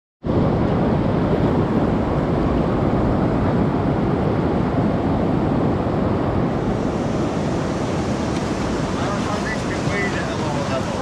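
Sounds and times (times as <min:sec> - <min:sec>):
river rapids rushing: 0:06.4 - 0:11.0.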